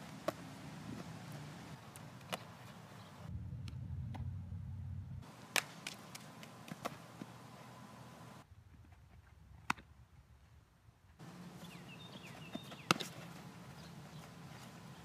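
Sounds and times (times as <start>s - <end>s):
low rumble: 3.3s - 5.2s
sharp smacks of softball: 5.5s - 7.3s, 9.6s - 9.9s, 12.5s - 13.3s.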